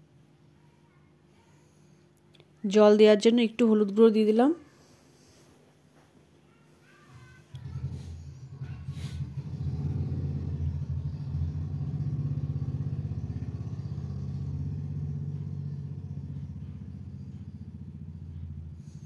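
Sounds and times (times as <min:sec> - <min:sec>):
stove rumble with fast flutter: 0:07.5 - 0:19.0.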